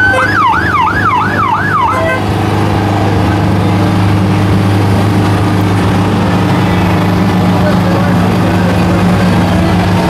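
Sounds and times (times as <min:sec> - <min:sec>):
emergency siren yelping: 0:00.0 - 0:02.4
low engine hum: 0:00.0 - 0:10.0.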